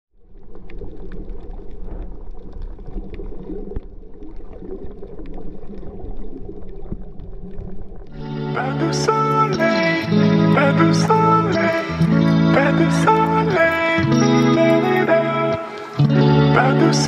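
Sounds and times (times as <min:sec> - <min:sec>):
muffled underwater water rumble: 0:00.1 - 0:08.2
crackling clicks: 0:00.3 - 0:08.2, 0:09.3 - 0:16.7
music: 0:08.2 - 0:17.0.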